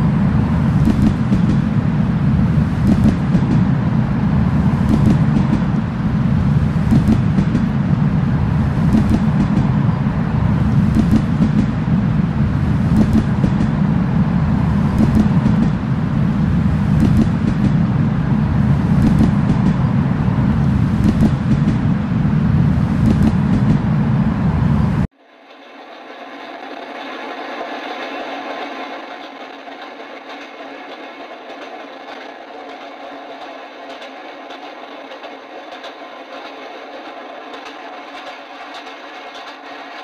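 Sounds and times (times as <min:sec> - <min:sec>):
vehicle rumbling: 0:00.0 - 0:25.2.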